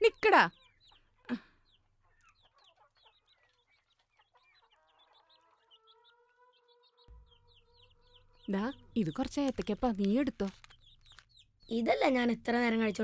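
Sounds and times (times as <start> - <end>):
birds chirping and clucking: 0.0 - 13.0.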